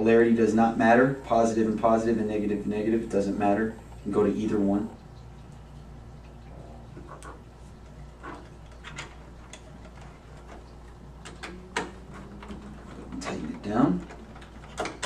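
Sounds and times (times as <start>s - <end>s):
low steady hum: 0.0s - 15.0s
wire leads clicking: 5.0s - 15.0s.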